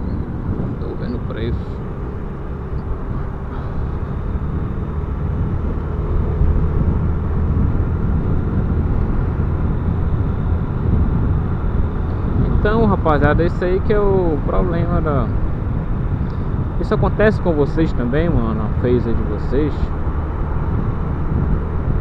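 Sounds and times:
motorcycle engine accelerating: 0.0s - 17.3s
wind noise: 0.0s - 22.0s.

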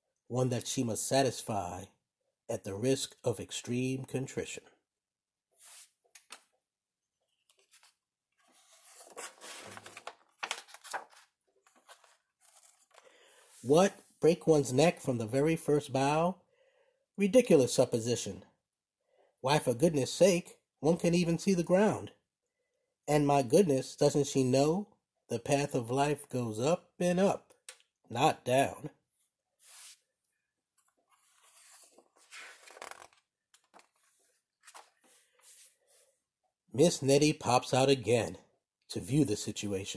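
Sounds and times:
book page turning: 5.6s - 6.6s, 7.4s - 13.1s, 29.6s - 30.0s, 30.8s - 36.0s.

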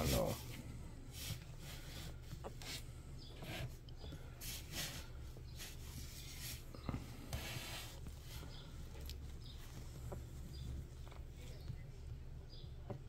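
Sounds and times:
rustling of a blanket: 0.0s - 2.8s
low steady hum: 0.0s - 13.0s.

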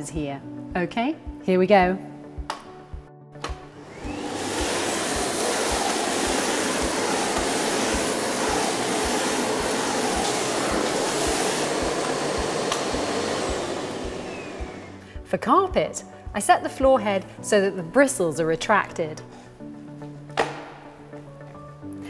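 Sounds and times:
vacuum cleaner running: 3.4s - 15.2s.

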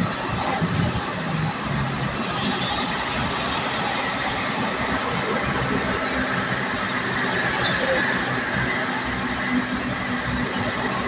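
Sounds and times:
tyre and wind noise: 0.0s - 7.2s.

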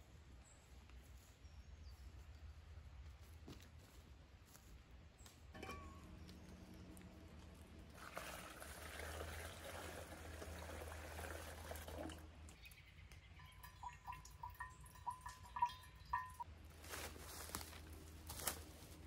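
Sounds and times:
water dripping into metal bottle: 5.5s - 16.6s.

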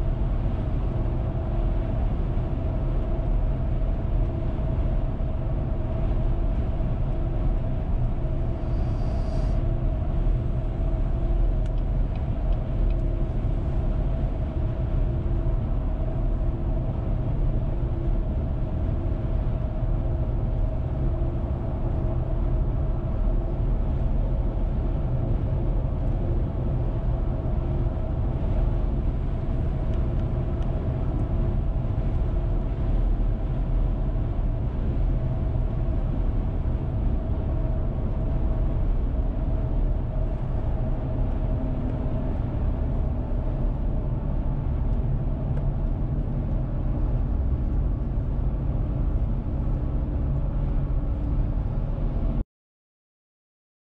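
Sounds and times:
faint constant hum: 0.0s - 52.4s.

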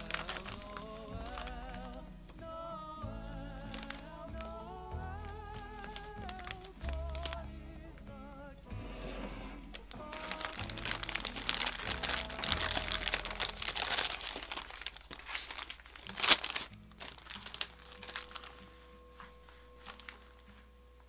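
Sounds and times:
plastic piping bag crinkling: 0.0s - 20.8s.

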